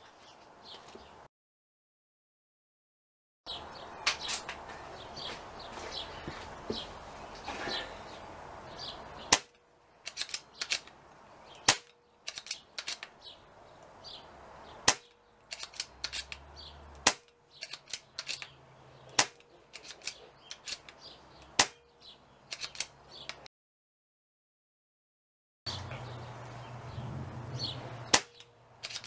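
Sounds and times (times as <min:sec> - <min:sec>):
air rifle shots cracking: 0:09.2 - 0:11.0, 0:11.6 - 0:13.1, 0:14.8 - 0:16.4, 0:17.0 - 0:18.5, 0:19.1 - 0:20.9, 0:28.0 - 0:29.0
light rifle clicks: 0:09.3 - 0:13.2, 0:14.8 - 0:21.6, 0:22.5 - 0:23.5, 0:28.1 - 0:29.0.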